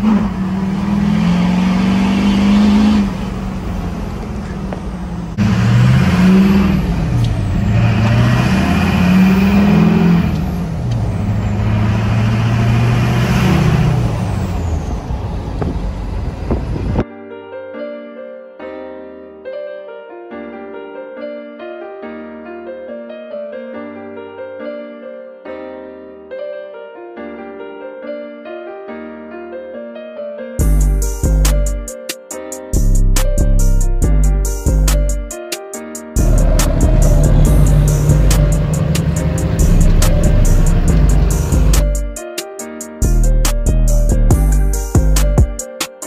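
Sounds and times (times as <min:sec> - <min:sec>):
diesel engine revving under load: 0:00.0 - 0:17.0, 0:36.2 - 0:42.1
held bass notes: 0:00.0 - 0:17.0, 0:30.6 - 0:31.9, 0:32.8 - 0:35.3, 0:36.2 - 0:42.2, 0:43.0 - 0:45.6
piano melody: 0:17.0 - 0:46.0.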